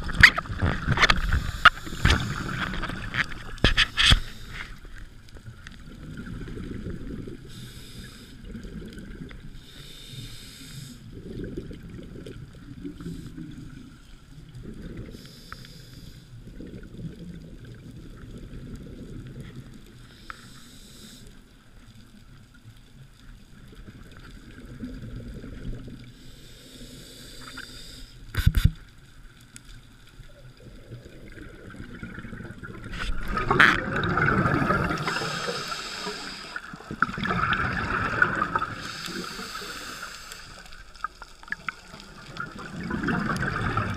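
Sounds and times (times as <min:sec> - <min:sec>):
diver regulator breaths: 0:00.9 - 0:05.0, 0:07.4 - 0:08.6, 0:09.6 - 0:11.2, 0:15.0 - 0:16.4, 0:20.0 - 0:21.5, 0:26.1 - 0:28.6, 0:34.5 - 0:37.1, 0:37.9 - 0:41.0
exhaled bubbles: 0:05.7 - 0:07.5, 0:11.1 - 0:15.2, 0:30.2 - 0:43.9.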